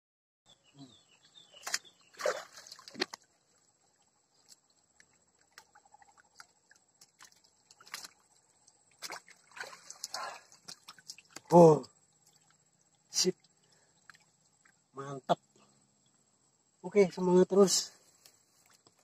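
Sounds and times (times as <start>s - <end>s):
stream water splashing: 1.6s - 14.9s.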